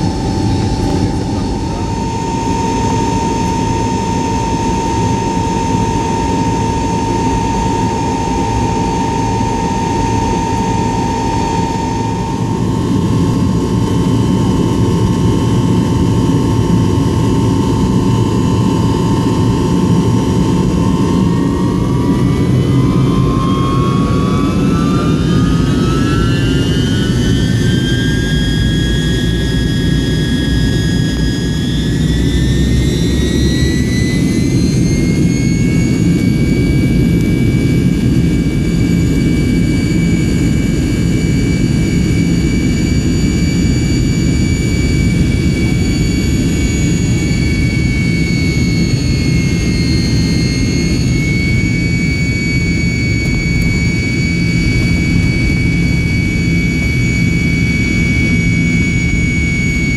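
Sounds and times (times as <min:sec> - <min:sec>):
jet engine rumble: 0:00.0 - 0:59.9
turbine whine rising in pitch: 0:00.0 - 0:59.9.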